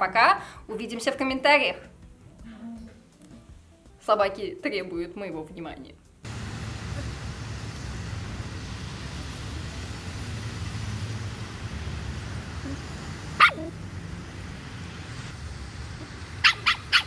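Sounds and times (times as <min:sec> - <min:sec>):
dog barking: 0:13.4 - 0:13.8, 0:16.4 - 0:17.0.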